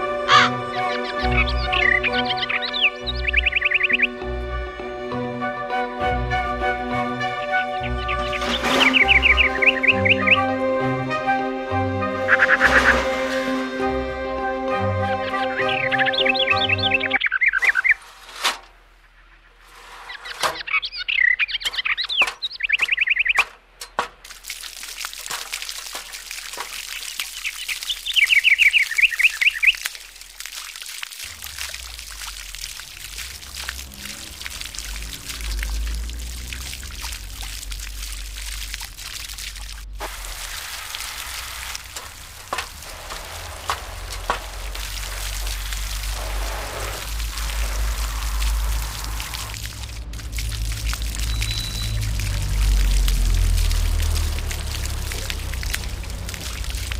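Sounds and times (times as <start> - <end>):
birds chirping: 0.0 - 5.4, 7.3 - 10.8, 12.0 - 13.2, 15.1 - 30.4, 41.3 - 56.9
water spraying and trickling: 0.0 - 56.9
low rumble: 42.0 - 56.9.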